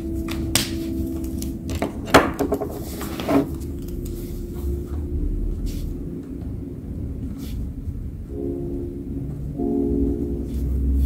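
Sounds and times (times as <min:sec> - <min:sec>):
steady low hum: 0:00.0 - 0:11.0
paper sheets handled: 0:00.3 - 0:04.4
pens set down on desk: 0:01.7 - 0:03.6.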